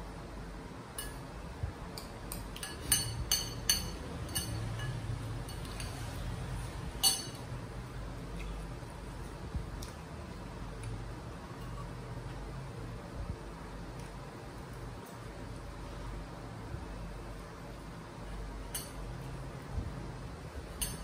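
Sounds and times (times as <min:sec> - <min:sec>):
metal spoon clinking ceramic bowl: 0:01.0 - 0:01.2, 0:02.0 - 0:06.0, 0:07.0 - 0:07.5, 0:20.8 - 0:21.0.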